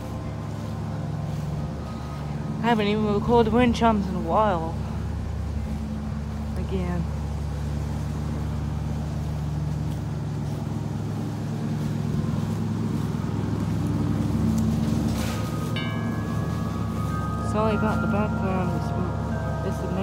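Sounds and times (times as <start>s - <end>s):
lawn mower engine running: 0.0s - 20.0s
wind chime ringing: 14.8s - 20.0s.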